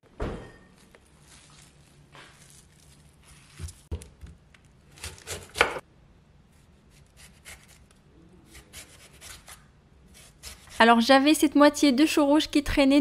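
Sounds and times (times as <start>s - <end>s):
knife crunching through cabbage: 1.2s - 3.9s.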